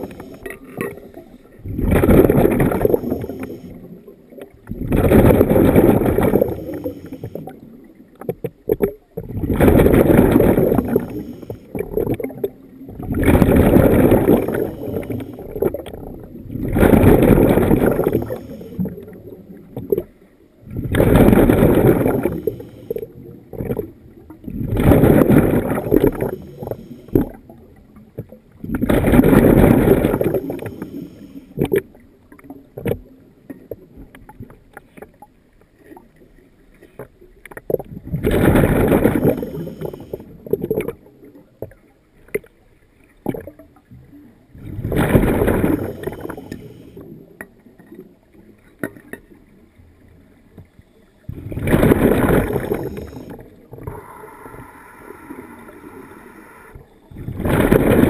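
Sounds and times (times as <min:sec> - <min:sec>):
underwater breath bubbles: 0:00.0 - 0:07.8, 0:08.7 - 0:27.6, 0:28.6 - 0:32.0, 0:37.7 - 0:41.0, 0:44.5 - 0:47.3, 0:51.3 - 0:58.0
faint clicks and crackles: 0:00.0 - 0:58.0.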